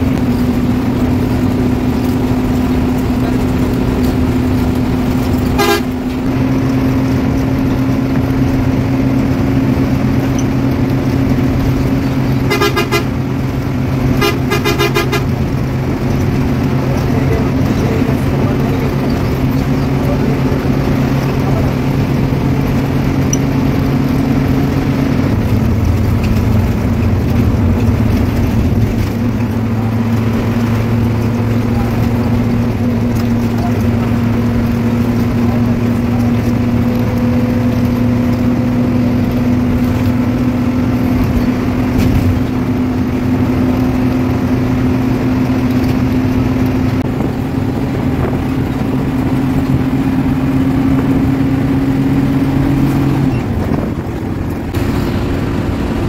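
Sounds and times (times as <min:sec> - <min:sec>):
coach engine running: 0:00.0 - 0:56.0
horn blasts: 0:05.4 - 0:06.4, 0:12.4 - 0:13.4, 0:14.0 - 0:15.6.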